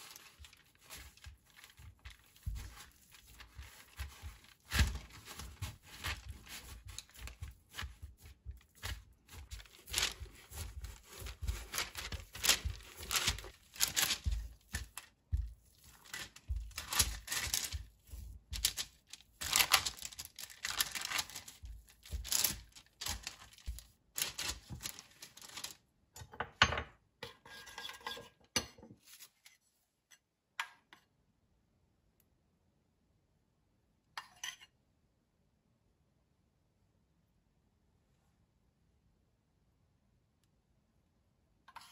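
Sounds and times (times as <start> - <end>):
hands patting dough: 0.0 - 25.8
parchment paper crinkling: 0.0 - 25.8.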